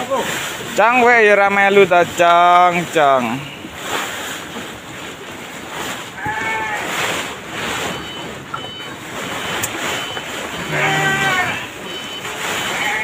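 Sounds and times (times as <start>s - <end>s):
goat bleating: 10.6s - 11.7s.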